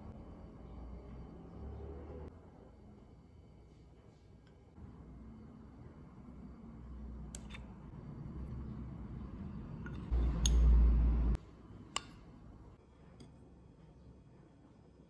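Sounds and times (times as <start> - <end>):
spoon clicks and taps: 9.8 - 10.7.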